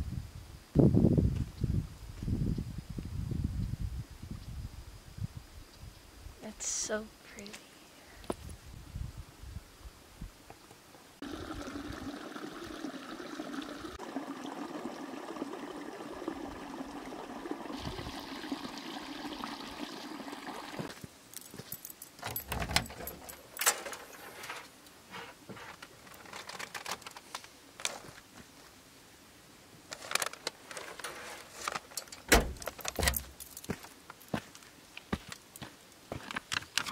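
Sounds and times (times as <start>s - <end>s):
water running through channels: 11.2s - 21.0s.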